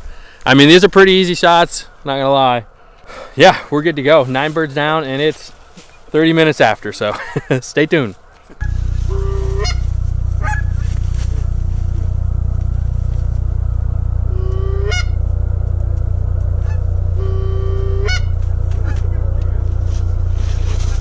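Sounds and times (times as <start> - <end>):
goose honks: 8.6 - 11.0, 14.3 - 15.3, 16.5 - 19.5
steady low drone: 8.6 - 21.0.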